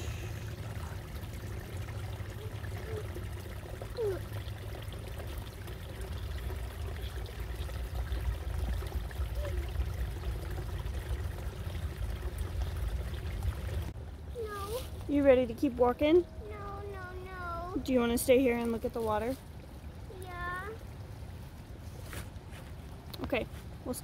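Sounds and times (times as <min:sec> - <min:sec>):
stream trickling over stones: 0:00.0 - 0:24.0.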